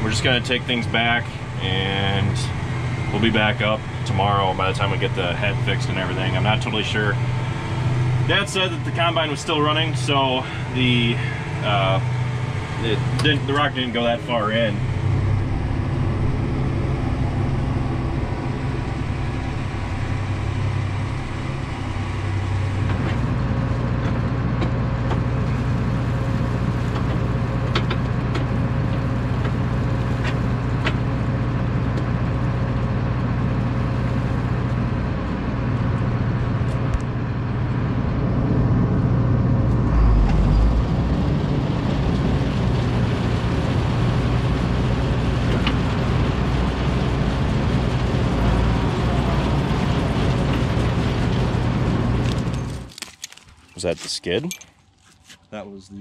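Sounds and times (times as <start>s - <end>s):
diesel engine humming: 0.0s - 56.0s
brief low rumble: 36.6s - 41.8s.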